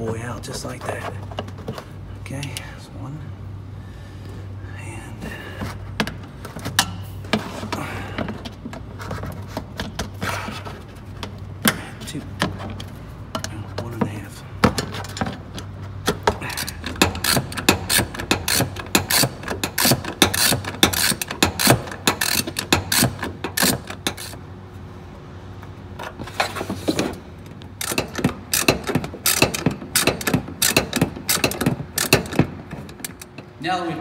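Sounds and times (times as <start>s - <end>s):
ratchet wrench clicking: 16.4s - 24.4s, 27.8s - 33.4s.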